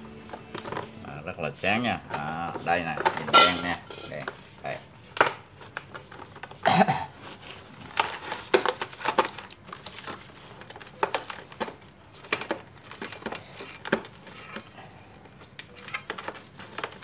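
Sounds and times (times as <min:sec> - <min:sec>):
brass clinking against basin: 0:03.3 - 0:04.2.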